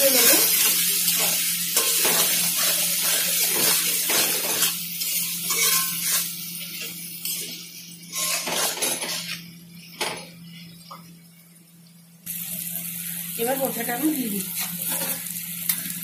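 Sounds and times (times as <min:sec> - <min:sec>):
food sizzling in oil: 0:00.0 - 0:16.0
spatula scraping metal pan: 0:05.4 - 0:06.3, 0:08.1 - 0:09.4.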